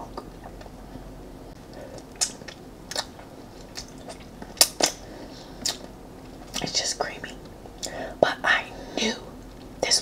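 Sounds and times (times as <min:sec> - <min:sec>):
wet mouth chewing clicks: 0:02.0 - 0:05.0.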